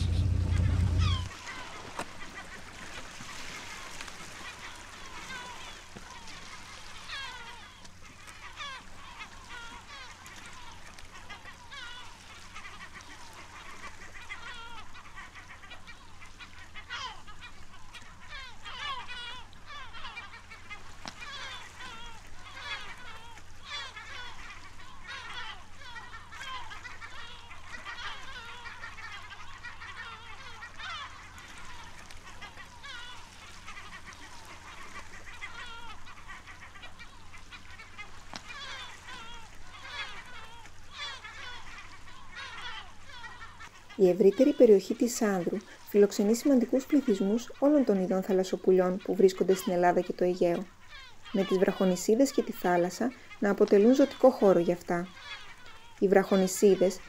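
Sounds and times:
gulls crying: 0:00.0 - 0:01.7, 0:16.7 - 0:57.0.

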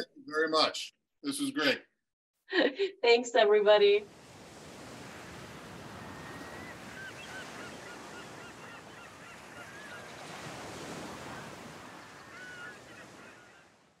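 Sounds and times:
wind: 0:03.8 - 0:14.0
surf: 0:04.0 - 0:14.0
gulls calling: 0:05.0 - 0:13.9.

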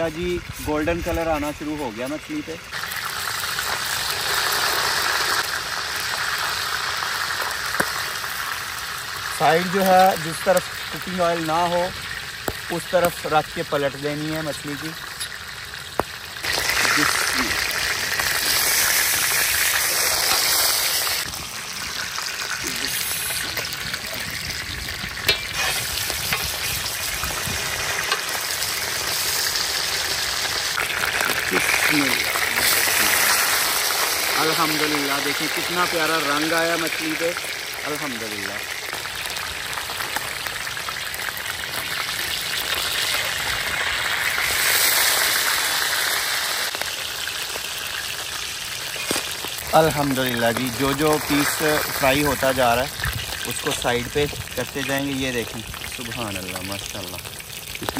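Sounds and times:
fish sizzling in oil: 0:00.0 - 0:57.9
metal spatula turning fish: 0:16.5 - 0:21.2, 0:25.2 - 0:29.6.

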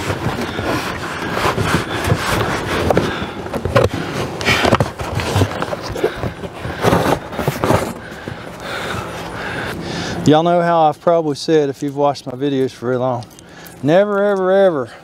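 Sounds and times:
cardboard scraping and rustling: 0:00.0 - 0:09.2.

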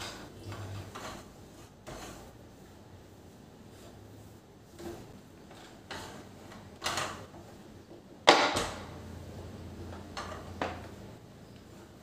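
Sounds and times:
cloth wiping glass stovetop: 0:00.0 - 0:07.9.

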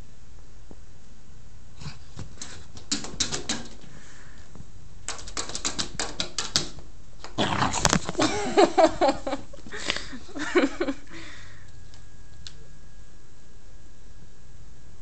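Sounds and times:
dog claws clicking on floor: 0:02.2 - 0:03.9, 0:05.0 - 0:08.2.

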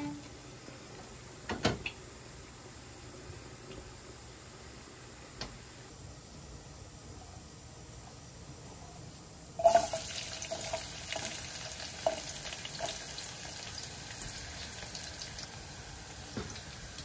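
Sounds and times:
onions sizzling in hot oil: 0:09.6 - 0:17.0.

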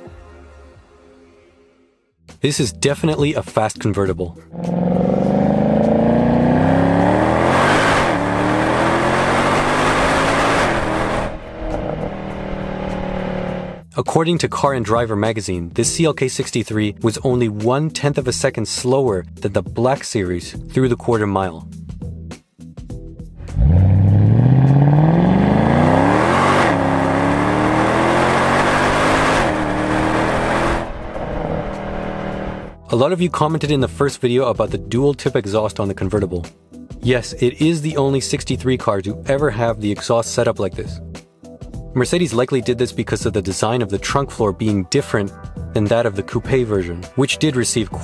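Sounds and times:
car engine accelerating hard: 0:04.6 - 0:13.8, 0:23.4 - 0:32.8
gear change: 0:04.6 - 0:13.8.

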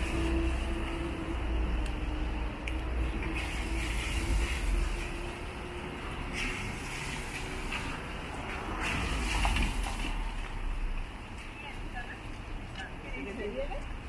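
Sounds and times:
tyre hiss on wet asphalt: 0:02.9 - 0:05.4.

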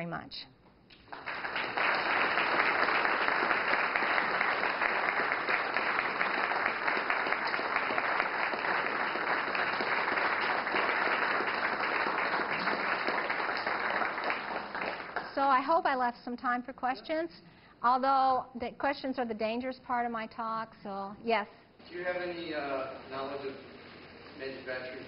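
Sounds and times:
audience applauding: 0:01.0 - 0:15.4.

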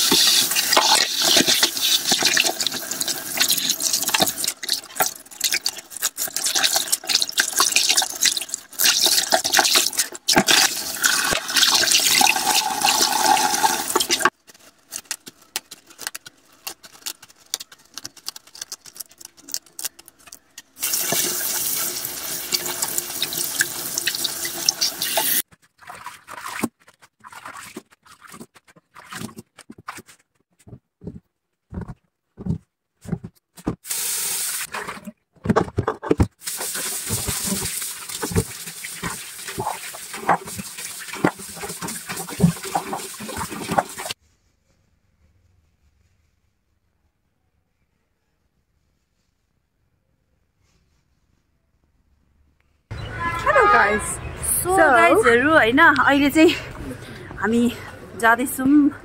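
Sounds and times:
small handling clicks and splashes: 0:24.8 - 0:30.3.

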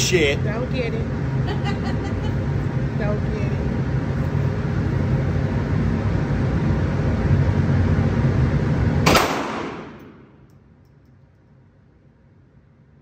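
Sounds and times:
pistol shot echoing: 0:09.1 - 0:10.2.

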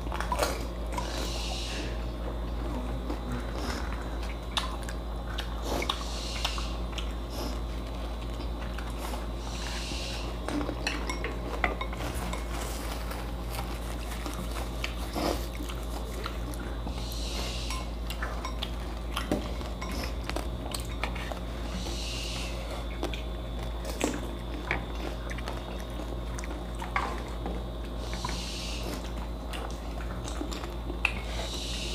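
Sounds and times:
biting and eating: 0:00.0 - 0:31.9
steady low hum: 0:00.0 - 0:31.9
chopsticks tapping plates and bowls: 0:10.9 - 0:12.6.

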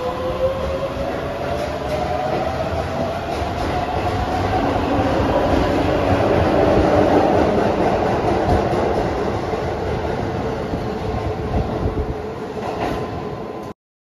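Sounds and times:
train wheels on rails: 0:00.0 - 0:13.7.

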